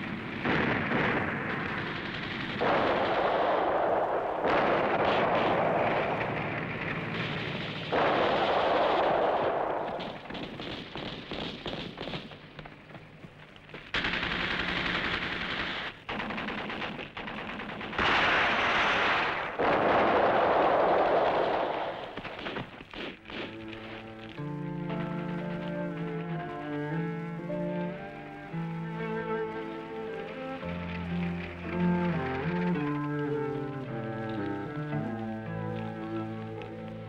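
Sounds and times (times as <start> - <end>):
machine guns rattling: 13.7 - 18.4.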